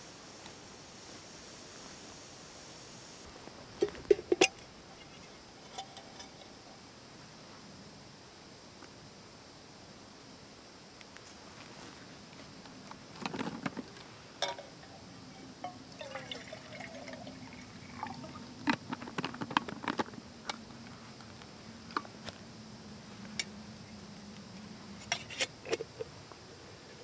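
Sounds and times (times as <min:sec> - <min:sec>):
clicks and knocks of bottle and cups: 0:03.8 - 0:04.6
water pouring from bottle: 0:15.9 - 0:18.4.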